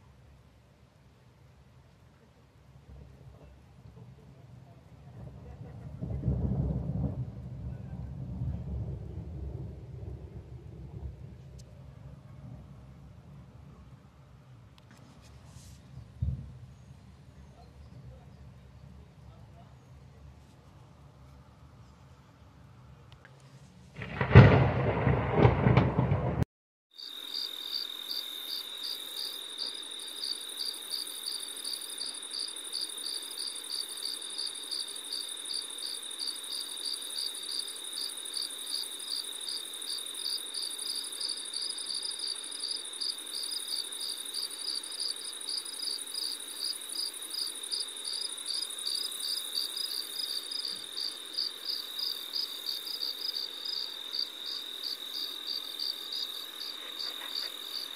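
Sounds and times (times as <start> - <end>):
insects chirping: 27.0 - 57.9.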